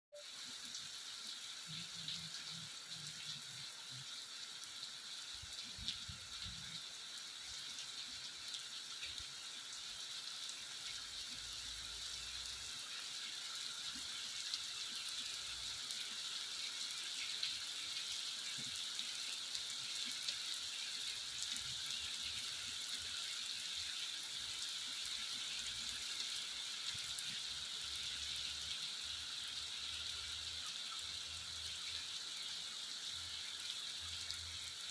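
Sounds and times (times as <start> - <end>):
heavy rain on asphalt: 0.5 - 9.3, 24.5 - 30.6, 32.6 - 34.9.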